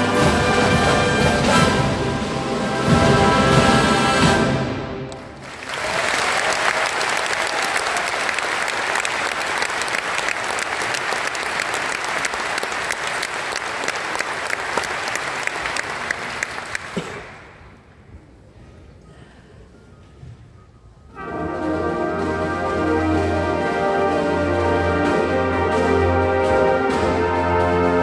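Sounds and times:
audience applauding: 5.1 - 17.6.

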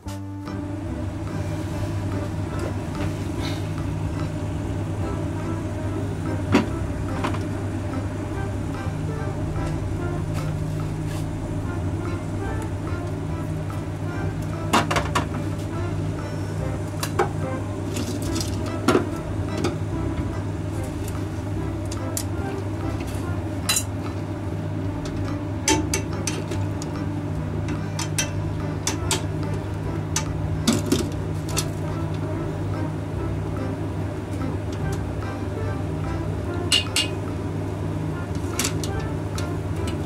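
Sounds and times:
steady low hum: 0.0 - 40.0
utensils and dishes clinking: 17.0 - 19.8, 23.0 - 24.1, 25.0 - 27.0, 27.7 - 29.3, 36.7 - 37.3, 38.3 - 40.0.

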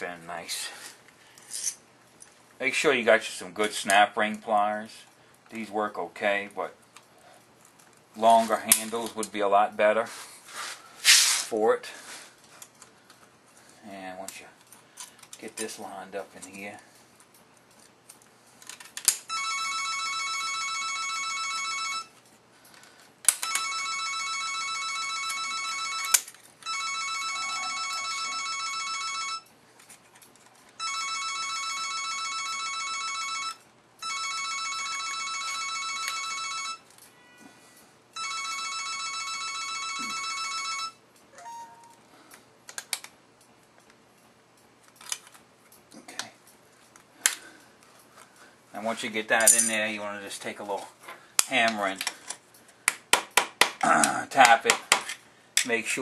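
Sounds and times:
telephone ringing: 19.3 - 22.2, 23.4 - 29.5, 30.8 - 42.1
hand tools clinking: 49.3 - 50.0.

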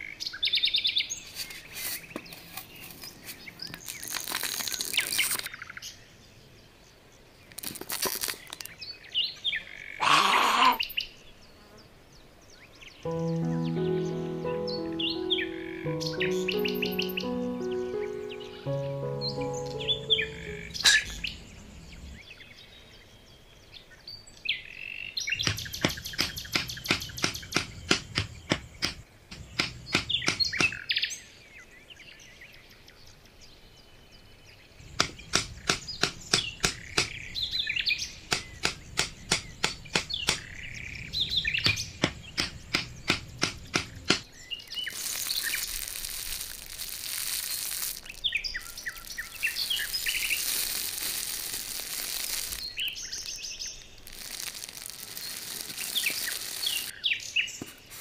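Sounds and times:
songbirds chirping: 0.0 - 45.8, 47.1 - 58.0
sharp taps: 25.4 - 30.8, 41.6 - 44.2
hiss: 44.8 - 56.9.

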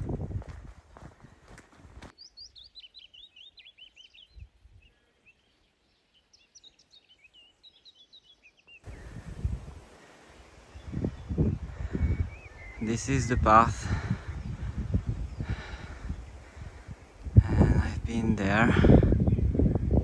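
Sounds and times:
footsteps on trail: 0.0 - 2.3
songbird chirping: 0.9 - 18.6.

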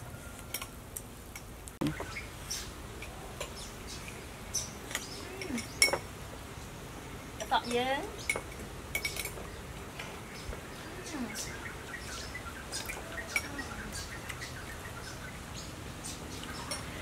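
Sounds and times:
spoons clinking against bowls: 8.3 - 9.4.

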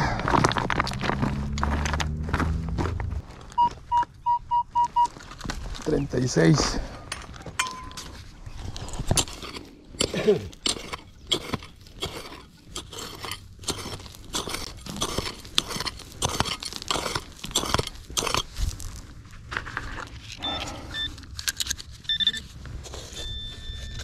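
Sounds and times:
pick digging into stony soil: 7.7 - 24.0.

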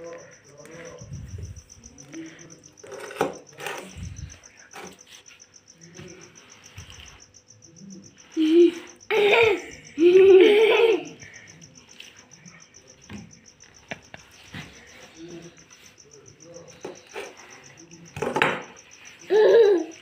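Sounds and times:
faint high insect chirping: 0.0 - 20.0.

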